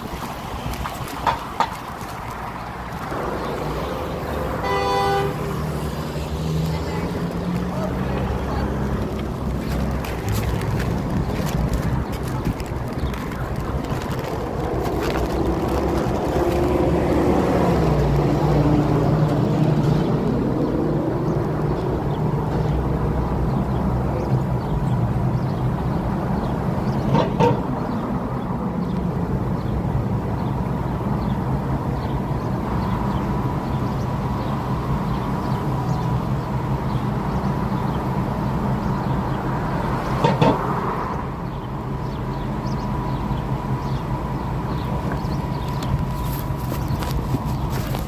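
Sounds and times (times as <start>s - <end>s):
road traffic: 0.0s - 48.0s
wind noise: 8.3s - 22.0s, 44.9s - 48.0s.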